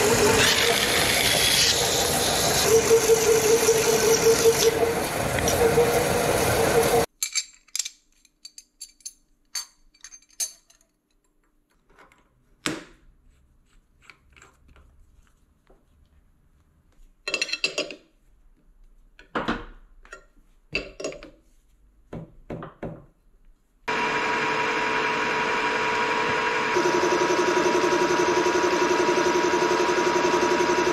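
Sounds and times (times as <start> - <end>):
workshop machine whining: 0.0 - 7.1, 23.9 - 30.9
metal tools clinking: 7.2 - 11.0, 17.3 - 18.1.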